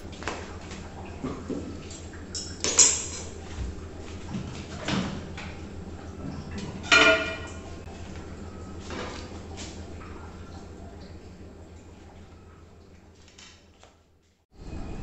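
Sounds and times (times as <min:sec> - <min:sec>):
steady low hum: 0:00.0 - 0:13.2, 0:14.5 - 0:15.0
cookware clacking: 0:06.8 - 0:07.7
ringing metal clank: 0:06.9 - 0:07.6.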